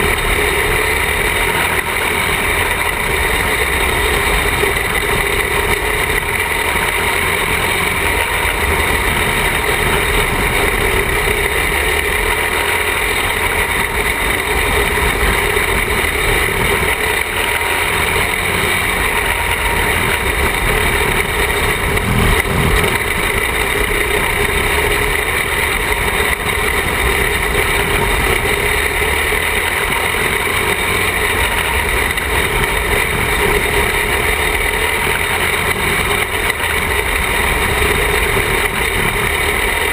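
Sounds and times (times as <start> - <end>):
noisy low rumble: 0.0 - 35.2
racing car engine: 0.0 - 39.9.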